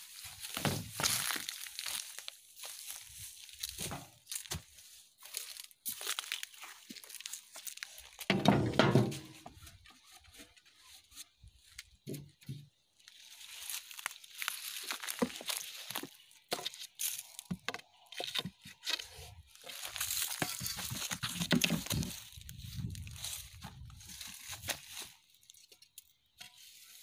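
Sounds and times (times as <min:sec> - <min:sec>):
dry leaves rustling and crunching: 0:00.0 - 0:11.0, 0:13.0 - 0:27.0
heavy thud: 0:08.3 - 0:09.4
clicks and knocks: 0:08.3 - 0:09.6.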